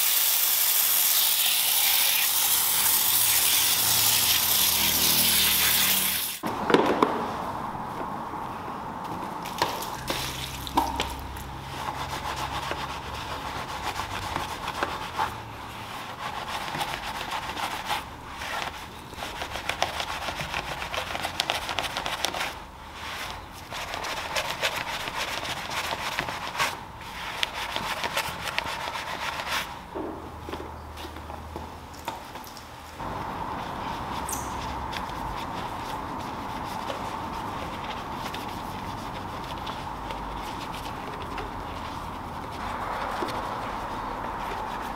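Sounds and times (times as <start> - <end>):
pump sprayer hissing: 0.0 - 6.4.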